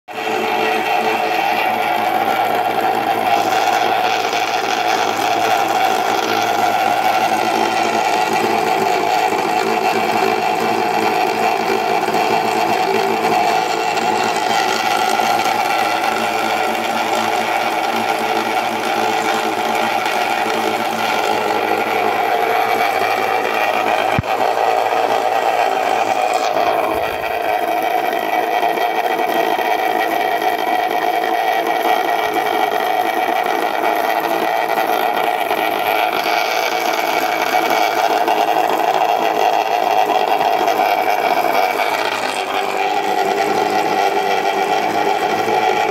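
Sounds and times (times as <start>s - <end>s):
small electric motor whirring: 0.1s - 45.9s.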